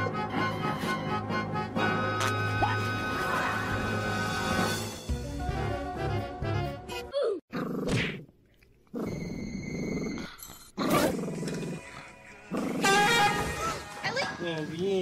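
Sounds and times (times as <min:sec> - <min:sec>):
dog growling: 0:08.9 - 0:13.1.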